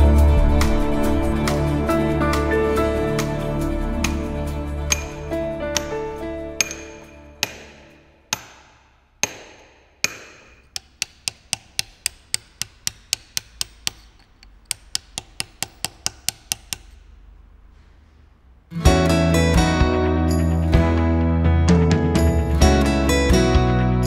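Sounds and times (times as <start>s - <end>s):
hammer striking steel chisel: 4.9s - 17.2s
loud guitar music: 18.8s - 24.0s.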